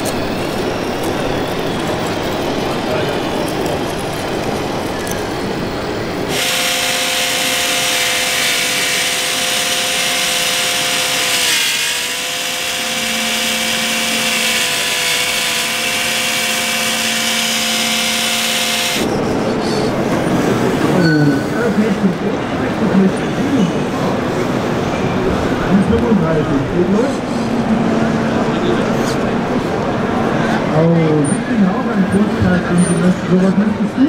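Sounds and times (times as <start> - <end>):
electric motor whine: 6.2 - 19.1.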